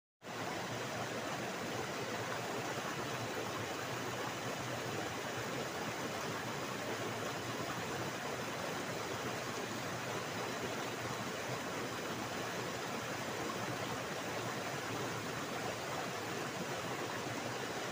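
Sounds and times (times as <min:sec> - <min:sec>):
stream flowing: 0:00.2 - 0:17.9.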